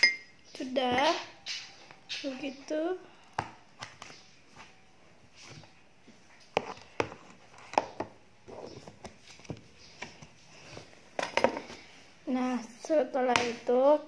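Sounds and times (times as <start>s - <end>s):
kitchen items knocking and clicking: 11.2s - 11.8s.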